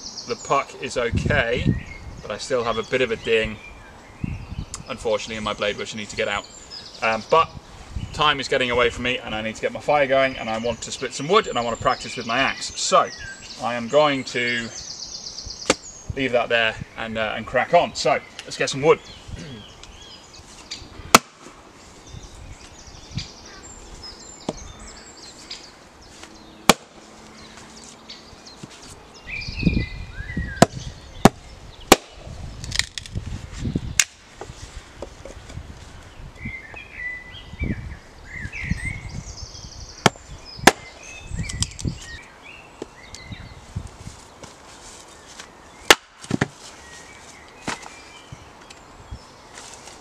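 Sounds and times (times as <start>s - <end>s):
axe chopping wood: 15.6s - 15.8s, 21.1s - 21.4s, 26.7s - 27.0s, 30.6s - 32.2s, 40.0s - 41.0s, 45.9s - 46.6s.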